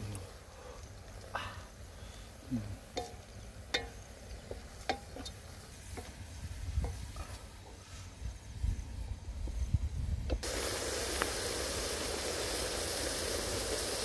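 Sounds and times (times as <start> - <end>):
spatula knocking metal pot: 2.9 - 6.2.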